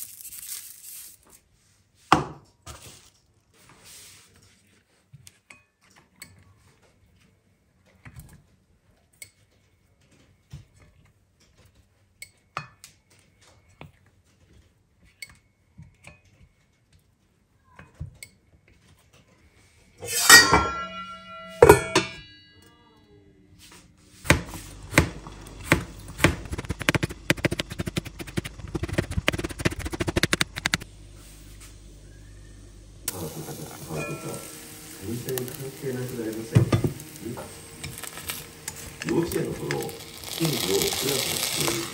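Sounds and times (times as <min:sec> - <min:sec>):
metallic pan clanks: 0:20.0 - 0:22.4
utensils knocking and clicking: 0:24.9 - 0:30.8
steak sizzling in frying pan: 0:33.1 - 0:41.9.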